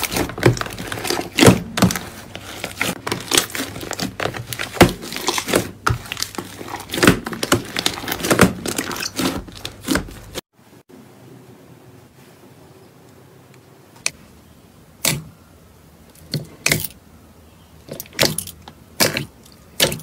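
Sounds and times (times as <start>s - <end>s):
slime squishing and popping: 0.0s - 10.4s.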